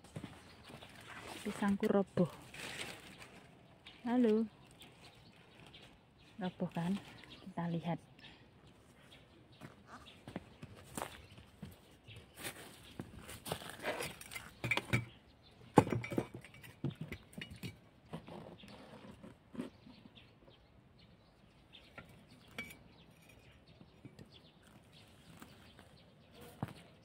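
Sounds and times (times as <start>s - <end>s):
footsteps on garden path: 0.0s - 14.6s, 24.3s - 27.0s.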